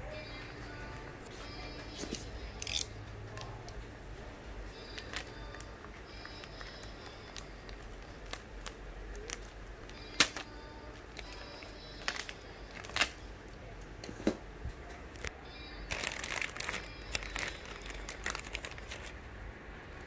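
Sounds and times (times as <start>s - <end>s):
plastic bag rustling: 4.8s - 13.2s, 15.2s - 19.2s.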